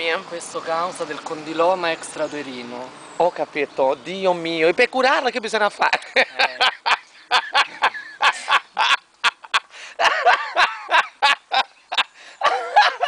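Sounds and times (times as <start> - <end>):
person laughing: 5.9 - 13.0.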